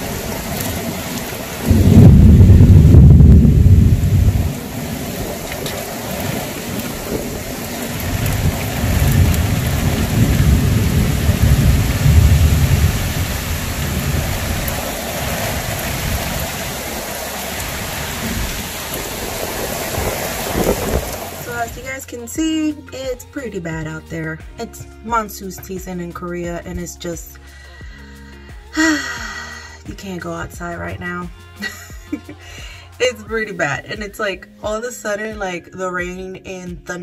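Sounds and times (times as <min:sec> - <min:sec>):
distant thunder rumbling: 0:00.0 - 0:22.0
heavy rain pouring: 0:00.0 - 0:22.0, 0:28.8 - 0:29.8.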